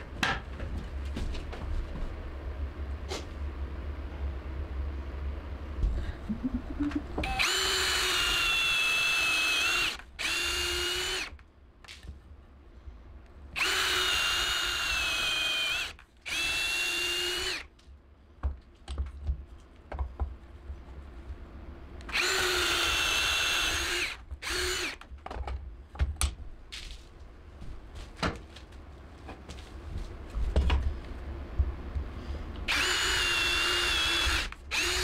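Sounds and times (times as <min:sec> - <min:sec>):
cordless drill boring wood: 0:07.2 - 0:11.4, 0:13.6 - 0:17.7, 0:22.1 - 0:25.0, 0:32.7 - 0:35.0.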